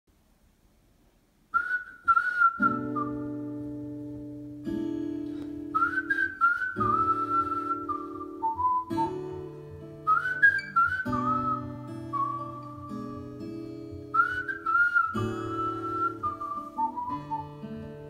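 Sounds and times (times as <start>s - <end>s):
whistled melody: 1.6s - 3.6s, 5.7s - 13.3s, 14.1s - 17.7s
acoustic guitar chords: 2.0s - 18.0s.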